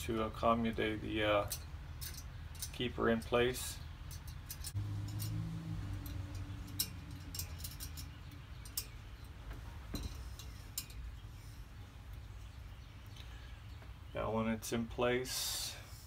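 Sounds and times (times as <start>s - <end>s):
low hum: 3.8s - 13.8s
light metallic clicks: 4.0s - 11.2s.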